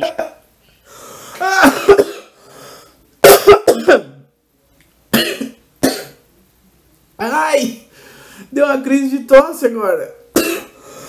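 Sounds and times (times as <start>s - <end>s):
man coughing: 1.4s - 2.4s, 3.2s - 4.2s, 5.2s - 6.2s, 10.4s - 10.8s.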